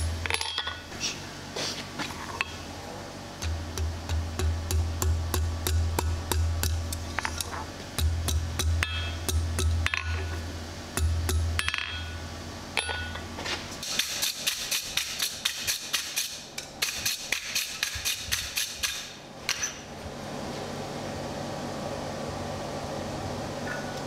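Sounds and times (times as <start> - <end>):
hammer striking steel on anvil: 3.4 - 7.1, 8.0 - 12.2, 12.8 - 13.2.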